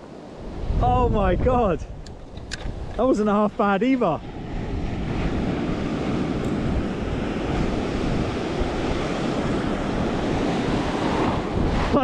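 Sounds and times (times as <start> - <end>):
wind buffeting microphone: 0.0 - 12.0
surf breaking and rushing: 2.6 - 12.0.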